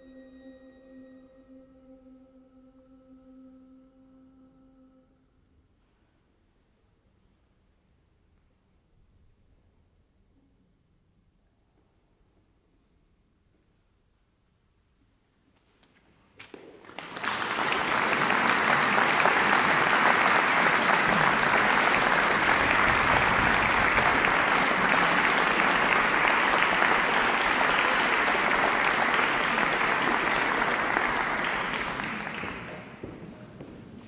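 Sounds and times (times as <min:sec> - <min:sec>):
audience applauding: 0:16.8 - 0:33.4.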